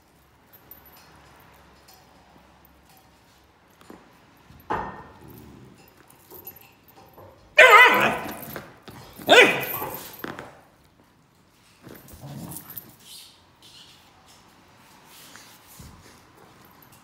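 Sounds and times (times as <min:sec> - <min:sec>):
puppy high-pitched barks: 0:07.6 - 0:08.6, 0:09.2 - 0:10.2.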